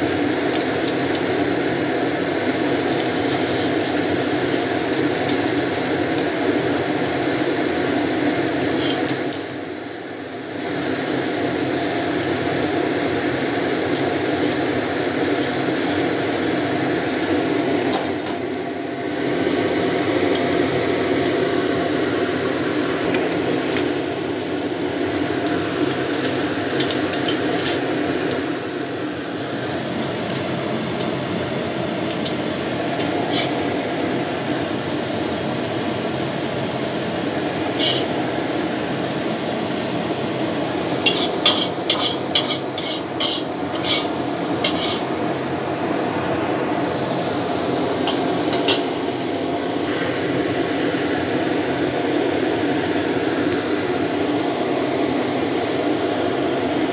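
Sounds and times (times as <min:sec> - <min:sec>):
fish frying in hot oil: 0:00.0 - 0:56.9
utensil scraping against wok: 0:08.7 - 0:09.2, 0:14.1 - 0:16.6, 0:32.9 - 0:33.8, 0:37.7 - 0:38.2, 0:41.0 - 0:45.1, 0:48.0 - 0:48.9.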